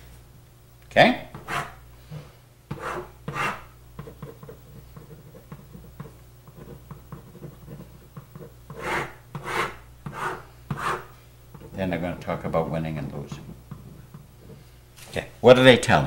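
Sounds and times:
marker pen scratching: 1.4 - 1.8, 2.7 - 11.8.

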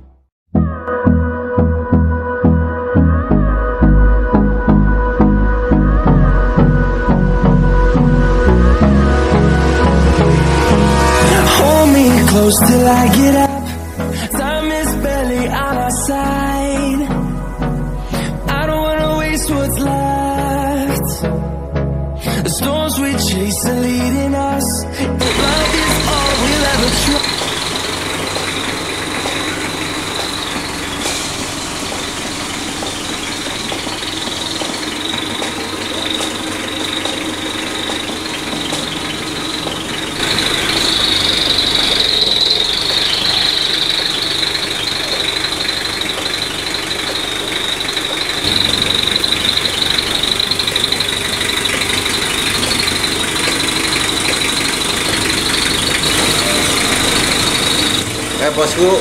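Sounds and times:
vehicle engine running: 2.6 - 59.0
high-pitched whine: 25.2 - 59.0.

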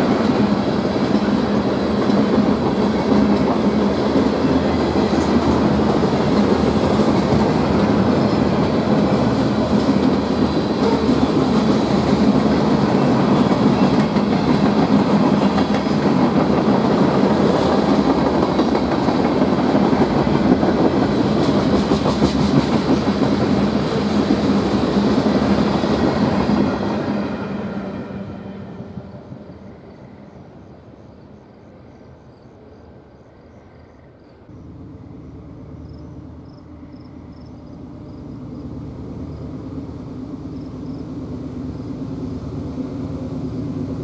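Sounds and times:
train wheels rumbling on rails: 0.0 - 32.5.

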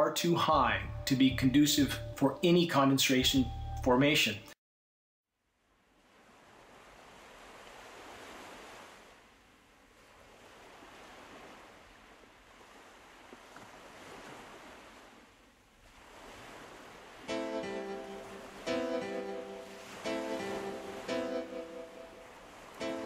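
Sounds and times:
plucked guitar music: 17.3 - 22.2, 22.8 - 23.0.

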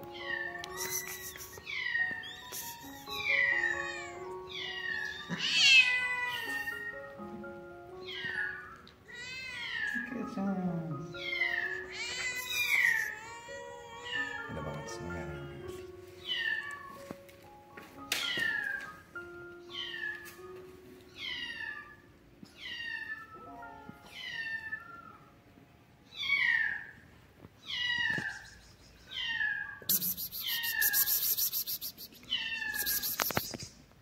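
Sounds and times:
kittens meowing: 0.1 - 7.0, 8.0 - 10.1, 11.1 - 16.9, 19.7 - 20.2, 27.6 - 33.7.

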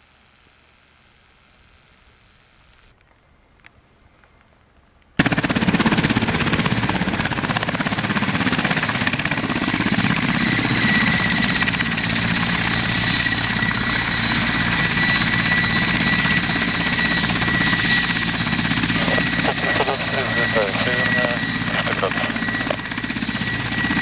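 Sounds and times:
helicopter rotor chop: 5.2 - 24.0
turbine whine: 5.2 - 24.0.

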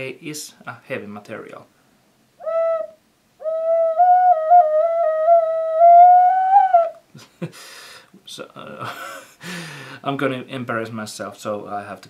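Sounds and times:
ocarina notes: 2.4 - 7.0.

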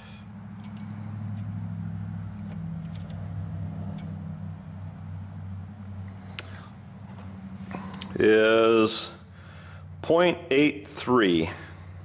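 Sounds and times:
steady low hum: 0.0 - 12.0
metal calipers clicking and tapping: 0.6 - 1.6, 2.3 - 3.3.

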